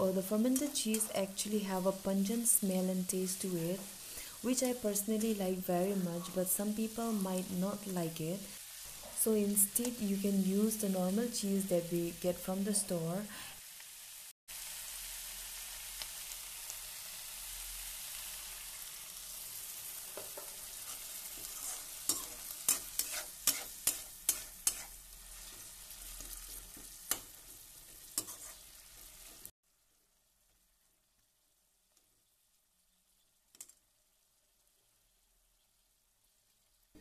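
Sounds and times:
vegetables sizzling in a wok: 0.0 - 37.0
metal spatula scraping a pan: 0.4 - 1.3, 20.2 - 29.5.

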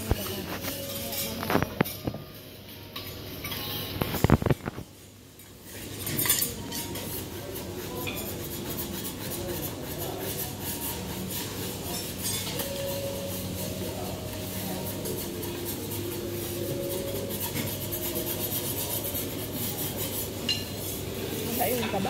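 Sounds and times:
utensils clinking against dishes: 0.0 - 22.0.

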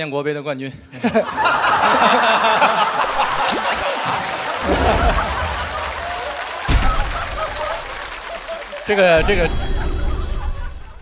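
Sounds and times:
studio audience laughing: 1.0 - 11.0.

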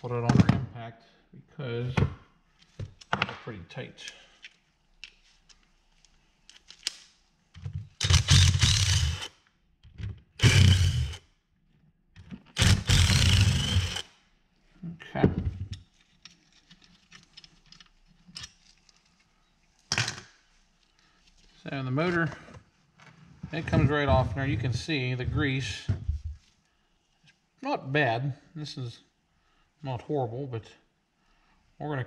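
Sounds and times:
impact driver hammering: 10.4 - 11.2.

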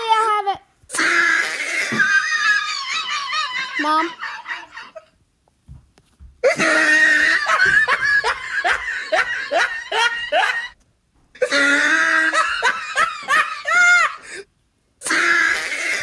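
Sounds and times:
person laughing: 1.6 - 5.1, 6.4 - 10.8, 11.4 - 14.4.

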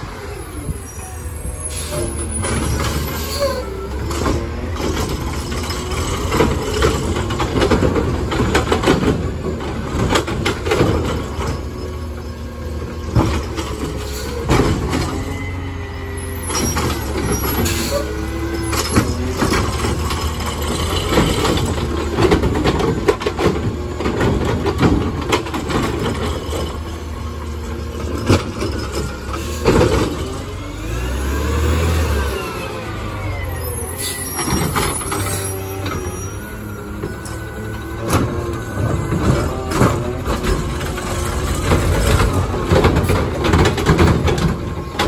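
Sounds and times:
garbage truck engine running: 0.0 - 45.0
metal clanks and bangs: 12.9 - 15.6, 16.2 - 30.7, 33.8 - 45.0.

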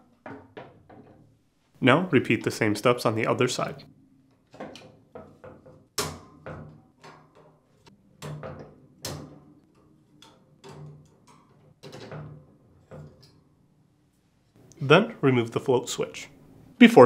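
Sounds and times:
wire dishrack rattling: 0.0 - 1.4, 2.4 - 13.8.

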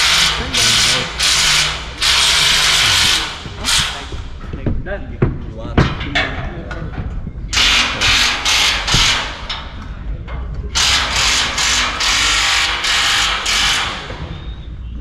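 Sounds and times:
power tool tightening fasteners: 0.0 - 4.1, 7.6 - 9.6, 10.8 - 14.3.

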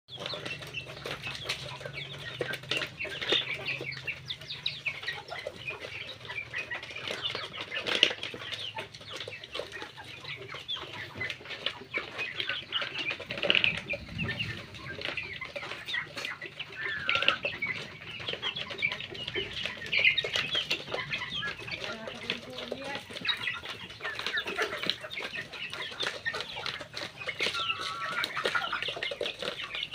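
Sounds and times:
chicks peeping: 0.1 - 29.9.

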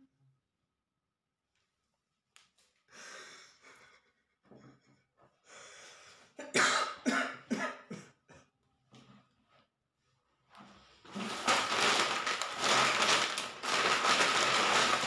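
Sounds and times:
man coughing: 6.4 - 8.2.

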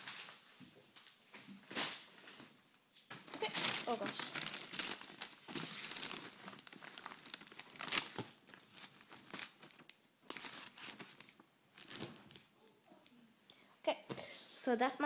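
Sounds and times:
plastic packaging crinkling: 3.1 - 12.6.

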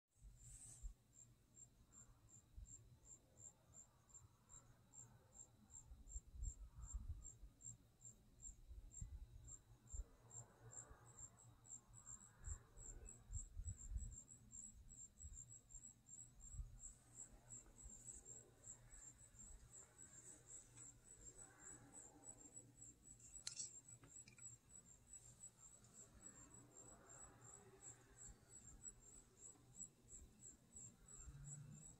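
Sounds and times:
faint crickets chirping: 0.2 - 31.9.

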